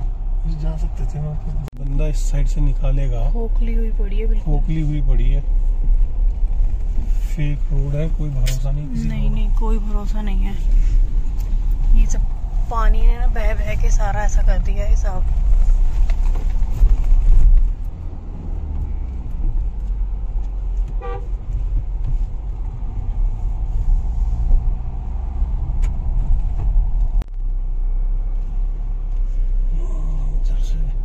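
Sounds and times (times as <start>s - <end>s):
car engine and road rumble: 0.0s - 31.0s
short horn toot: 21.0s - 21.4s.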